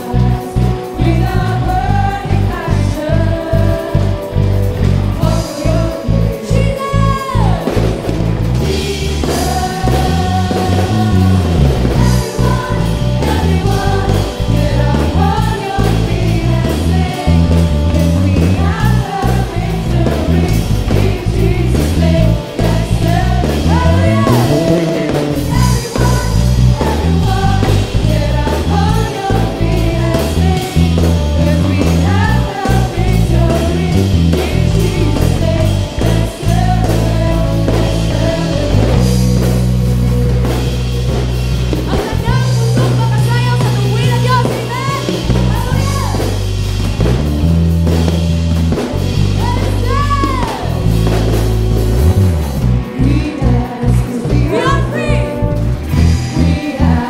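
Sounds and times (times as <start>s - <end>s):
singers: 0.0s - 46.4s, 52.7s - 57.0s
bass guitar: 0.0s - 57.0s
electric guitar: 0.0s - 57.0s
steady beat: 17.6s - 27.8s.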